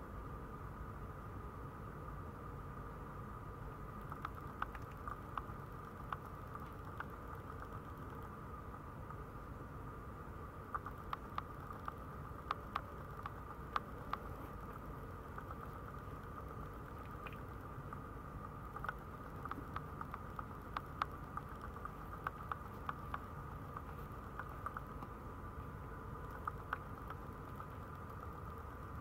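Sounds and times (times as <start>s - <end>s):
faint steady hum: 0.0s - 29.0s
puppies stirring clicks and taps: 4.0s - 8.2s, 18.8s - 25.1s.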